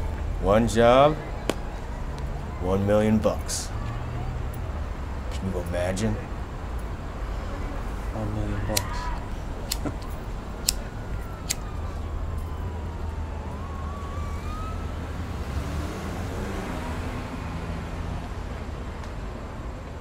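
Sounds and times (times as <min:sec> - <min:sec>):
faint siren wailing: 0:00.0 - 0:05.3, 0:06.2 - 0:18.3
traffic rumble: 0:00.0 - 0:20.0
sharp clicks: 0:08.7 - 0:11.7.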